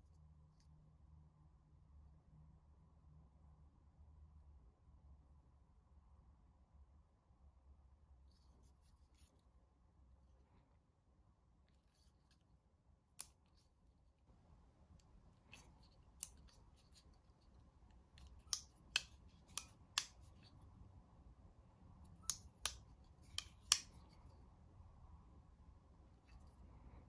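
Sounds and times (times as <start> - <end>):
folding knife blade clicking: 13.2 - 13.4, 15.5 - 17.1, 18.2 - 20.5, 22.2 - 24.1.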